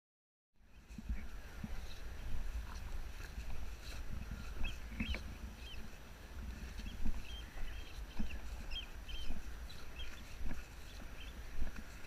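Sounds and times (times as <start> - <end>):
footsteps through long grass: 0.6 - 12.0
wind rumble on microphone: 0.6 - 12.0
small bird chirping: 3.8 - 6.0, 6.6 - 12.0.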